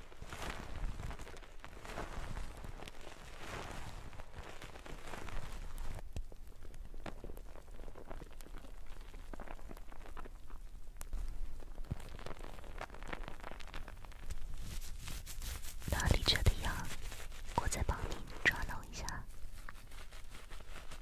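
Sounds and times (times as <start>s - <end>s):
hands kneading shampoo lather: 0.0s - 6.0s, 11.2s - 21.0s.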